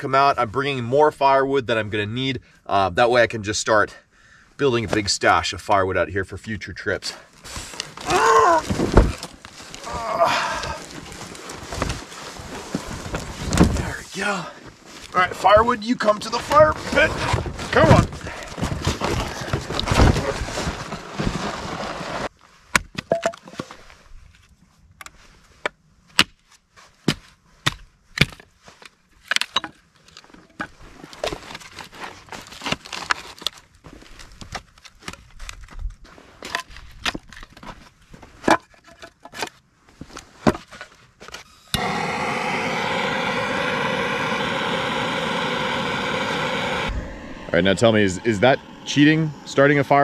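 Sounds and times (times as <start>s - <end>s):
torch lighter hissing: 41.6s - 50.0s.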